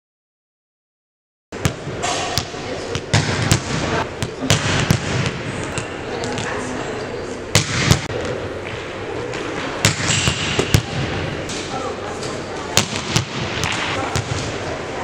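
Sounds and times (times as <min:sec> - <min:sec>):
murmur of voices: 0:01.8 - 0:15.0
volleyball smacks: 0:07.5 - 0:08.2, 0:09.8 - 0:11.7, 0:12.8 - 0:14.5.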